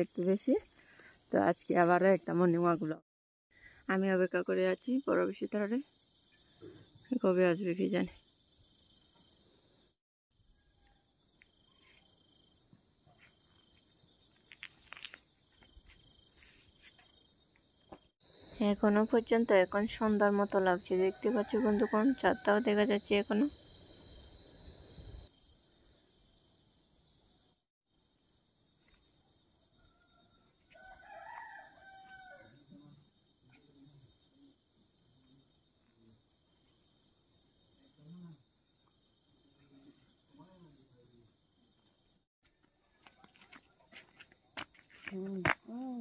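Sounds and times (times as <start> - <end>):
crickets and insects chirping: 0.0 - 3.0, 3.6 - 46.0
faint rooster crowing: 21.0 - 22.8, 29.8 - 33.0.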